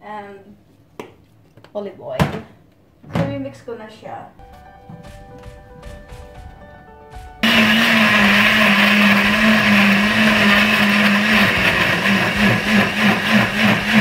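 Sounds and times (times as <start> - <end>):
blender motor running: 7.4 - 14.0.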